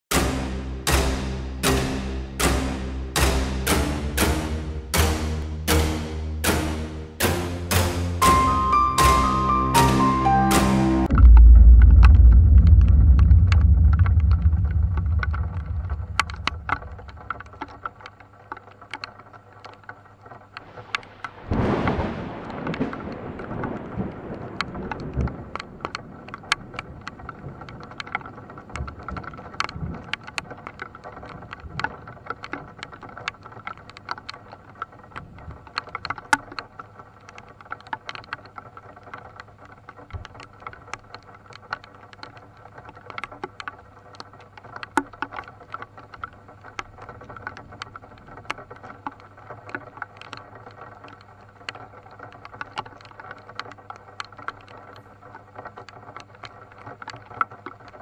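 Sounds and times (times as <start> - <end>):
thunder rumble: 10.9 - 17.9, 20.7 - 31.8
rain on a car roof: 11.0 - 58.0.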